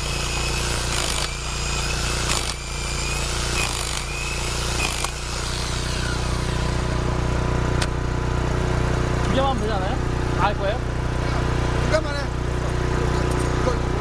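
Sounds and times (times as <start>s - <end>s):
hammer drill drilling into concrete: 0.0s - 7.0s
steady engine hum: 0.0s - 14.0s.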